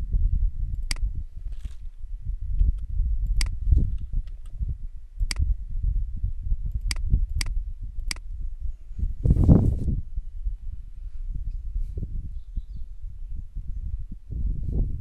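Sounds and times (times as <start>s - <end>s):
low steady rumble: 0.0s - 15.0s
computer mouse clicking: 6.7s - 8.2s.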